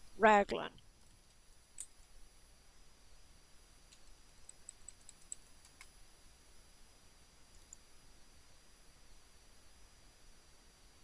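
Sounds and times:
computer keyboard keystrokes: 3.9 - 5.9.

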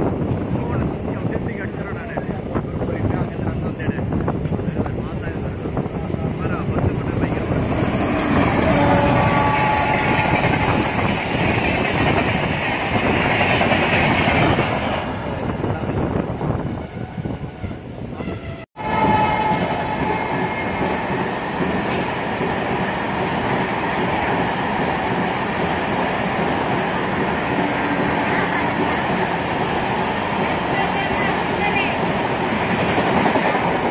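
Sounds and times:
heavy train rumble: 0.0 - 33.9
train wheels clattering over rails: 6.5 - 15.2, 19.4 - 33.9.

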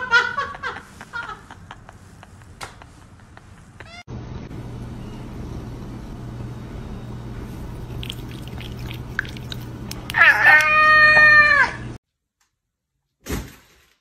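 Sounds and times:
steady low hum: 0.4 - 10.2
cat licking: 7.8 - 10.2
cat meowing: 10.1 - 11.8.

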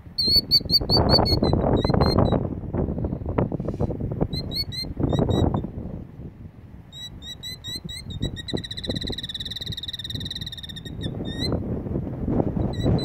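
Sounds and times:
bird rapid alarm trill: 0.2 - 2.4, 6.9 - 11.6.

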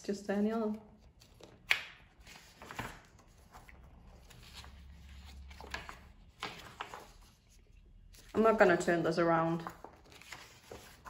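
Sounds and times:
book pages turning: 0.7 - 8.8, 9.4 - 11.0
sharp paper crackle: 9.5 - 11.0.

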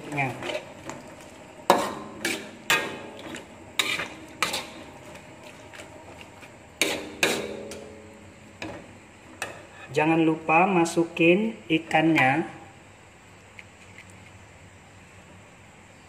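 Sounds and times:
metal spatula clanking on wok: 6.8 - 8.0.

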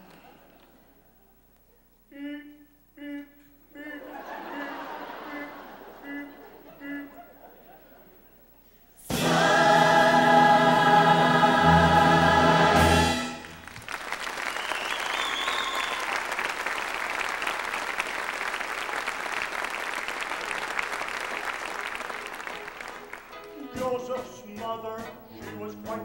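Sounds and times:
chorus and orchestra chord: 9.1 - 13.6
audience applause: 13.4 - 23.6.

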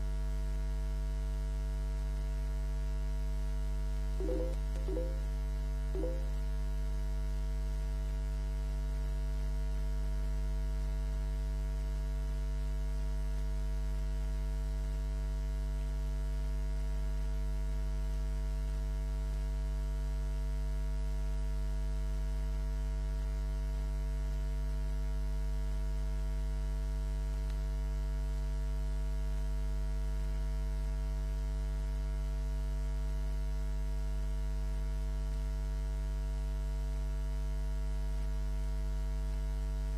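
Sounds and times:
electrical mains hum: 3.9 - 6.4.

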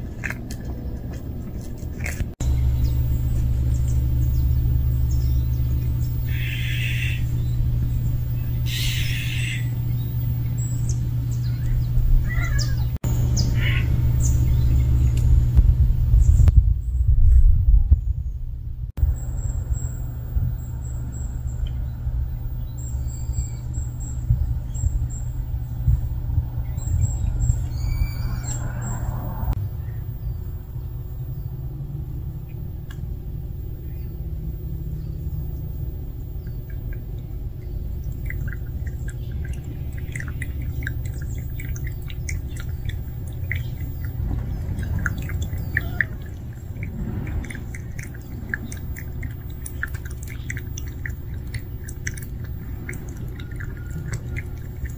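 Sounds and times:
steady low rumble: 0.0 - 54.9
cat lapping water: 36.0 - 54.9.

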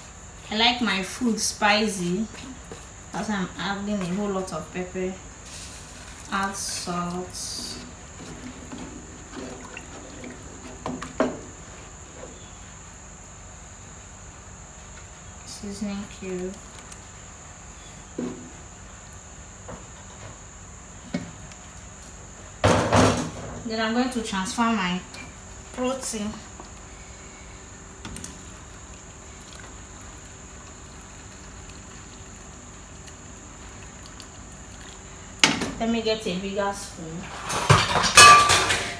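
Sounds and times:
cricket trill: 0.0 - 38.9
soup bubbling: 5.4 - 11.8, 26.6 - 35.5.

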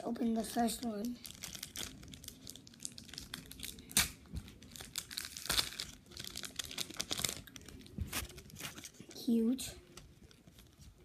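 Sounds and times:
foil pack crackling and ripping: 0.8 - 9.4.

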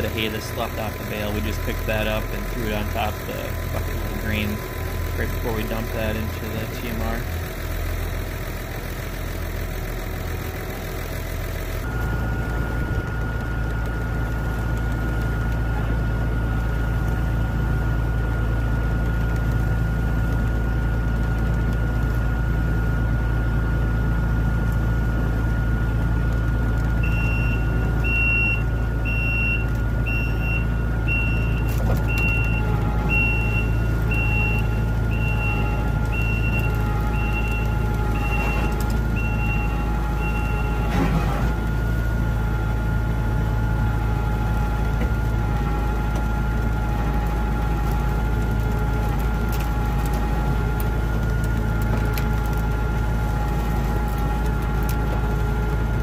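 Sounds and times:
heavy machinery engine running: 0.0 - 56.0
electronic reversing beeps: 27.0 - 41.9.

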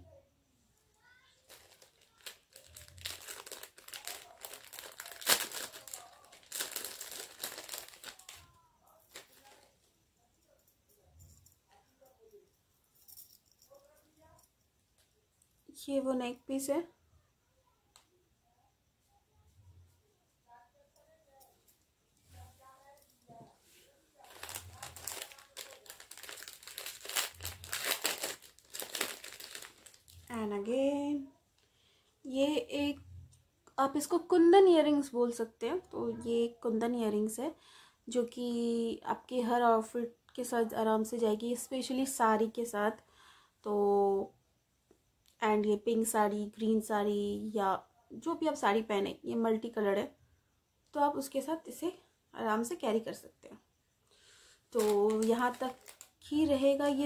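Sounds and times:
packaging crinkling and rustling: 1.2 - 9.7, 24.2 - 30.3, 54.7 - 56.3.

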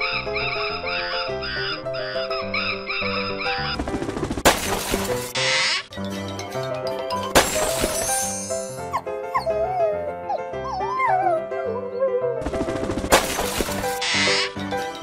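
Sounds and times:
background music: 0.0 - 15.0
cartoon dog crying: 8.9 - 12.4.

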